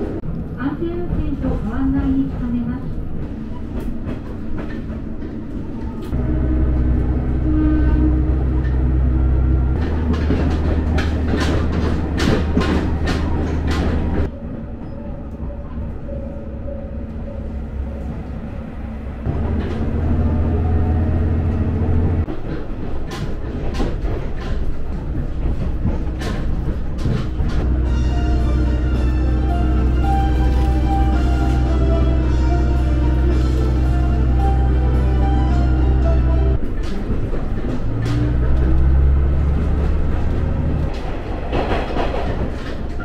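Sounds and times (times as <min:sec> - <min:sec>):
diesel engine drone: 0:06.1 - 0:22.3, 0:25.8 - 0:41.6
wheels clacking over rail joints: 0:07.9 - 0:14.4, 0:19.3 - 0:34.8, 0:36.5 - 0:43.0.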